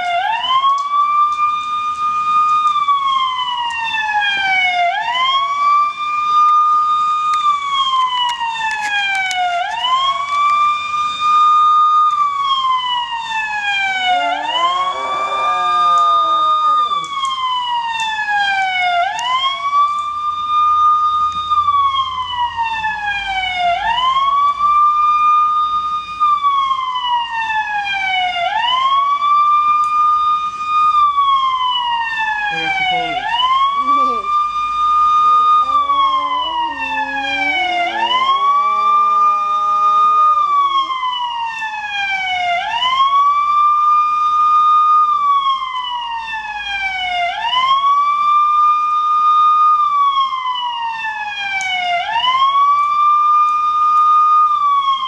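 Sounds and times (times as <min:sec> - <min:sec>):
siren wailing: 0:00.0 - 0:55.0
dog howling: 0:13.8 - 0:17.6, 0:32.5 - 0:41.6.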